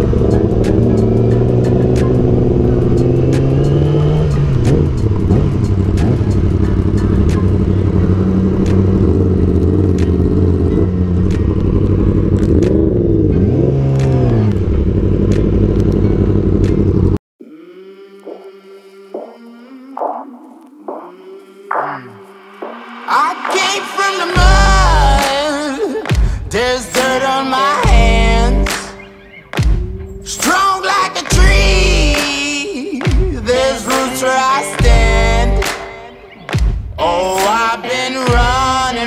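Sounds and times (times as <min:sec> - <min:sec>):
motorcycle engines revving: 0:00.0 - 0:17.2.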